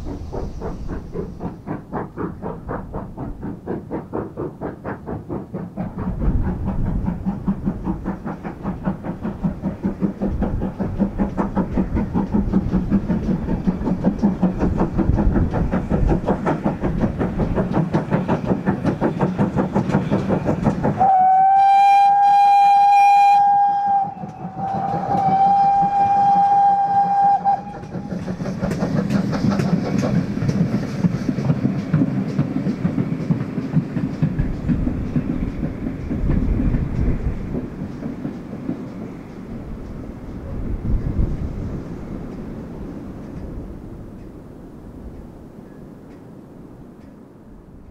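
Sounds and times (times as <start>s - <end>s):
steam locomotive exhaust beats: 0.0s - 47.9s
train wheel noise: 0.0s - 47.9s
steam whistle blasts: 21.0s - 27.8s.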